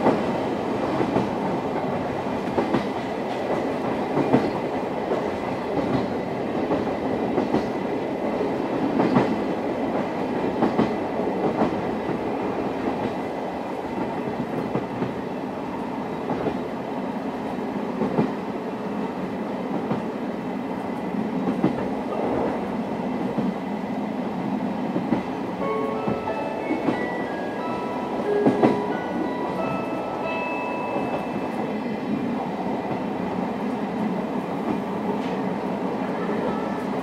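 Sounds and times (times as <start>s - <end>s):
melody of short clear notes: 25.6s - 31.6s.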